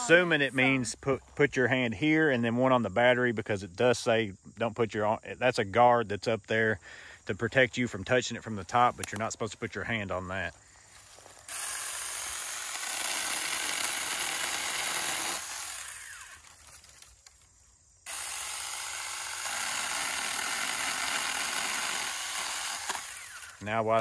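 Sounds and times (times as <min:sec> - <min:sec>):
mini chainsaw cutting branches: 0:11.0 - 0:24.0.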